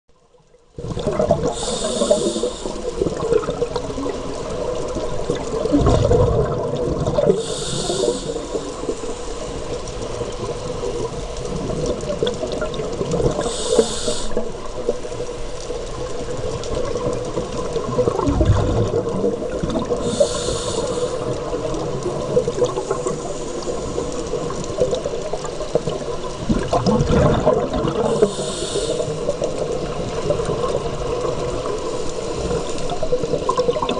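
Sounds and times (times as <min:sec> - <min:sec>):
bubbling exhalations: 0:00.8 - 0:04.3, 0:05.2 - 0:09.0, 0:16.8 - 0:25.0, 0:25.8 - 0:30.9
underwater murmur: 0:00.8 - 0:33.9
scuba regulator hiss: 0:01.4 - 0:03.1, 0:07.3 - 0:09.7, 0:13.4 - 0:14.6, 0:20.0 - 0:21.6, 0:28.1 - 0:29.4.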